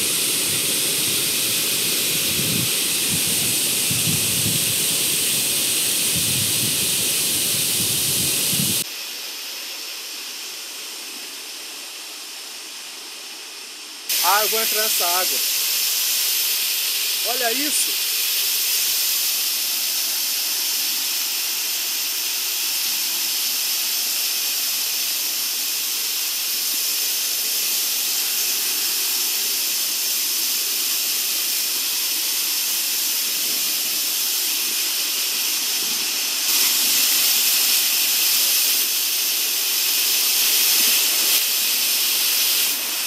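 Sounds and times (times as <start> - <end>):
waterfall rushing: 0.0 - 8.8, 14.1 - 19.7, 32.1 - 43.0.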